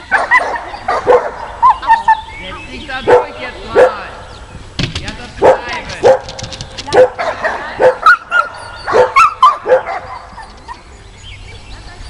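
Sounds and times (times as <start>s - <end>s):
dog barking and yelping: 0.1s - 2.3s, 5.4s - 10.8s.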